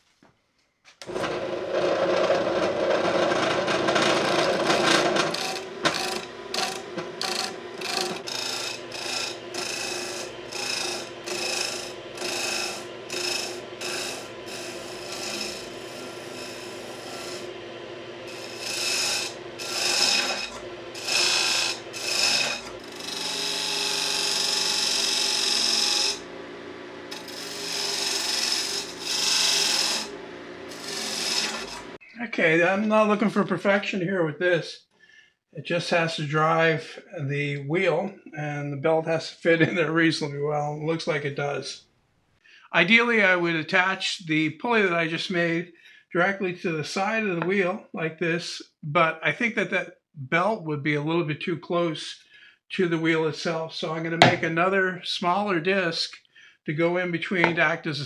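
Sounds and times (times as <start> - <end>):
turning tool scraping wood: 1.0 - 26.3, 27.0 - 32.0
wood lathe running: 1.0 - 32.0.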